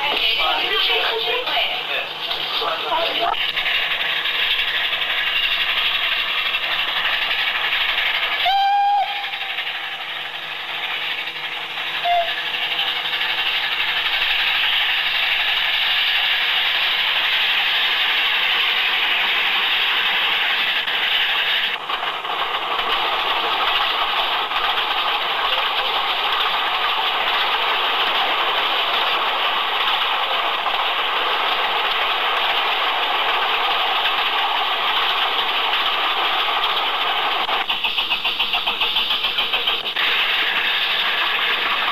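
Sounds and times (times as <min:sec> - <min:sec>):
coaches rattling on track: 0:00.0 - 0:41.9
steam train running: 0:00.0 - 0:41.9
train whistle blast: 0:08.4 - 0:09.3, 0:12.0 - 0:12.4.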